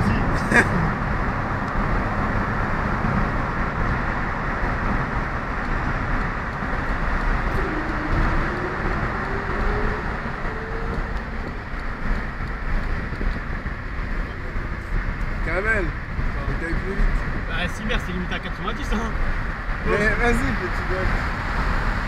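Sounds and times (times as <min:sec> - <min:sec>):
car road and engine noise: 0:00.0 - 0:22.0
engine note rising in pitch: 0:06.7 - 0:11.4.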